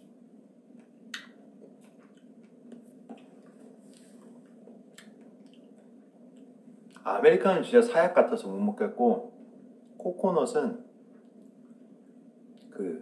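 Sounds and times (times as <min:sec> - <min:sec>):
low background hum: 0:00.0 - 0:13.0
small mouth clicks: 0:00.8 - 0:02.8, 0:04.9 - 0:07.0.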